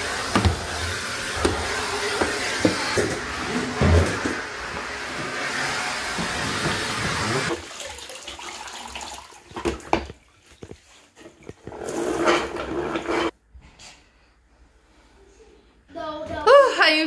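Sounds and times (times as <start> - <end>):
vacuum cleaner running: 0.0 - 7.6
mop knocking in plastic bucket: 0.2 - 4.4.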